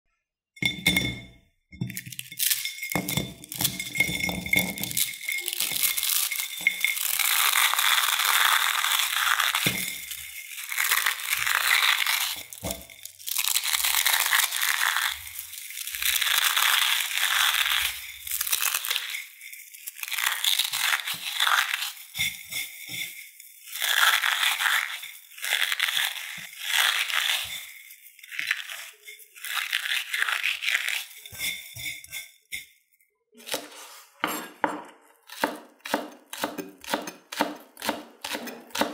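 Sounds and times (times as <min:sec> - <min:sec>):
dry noodles crunching by hand: 0:05.0 - 0:31.6.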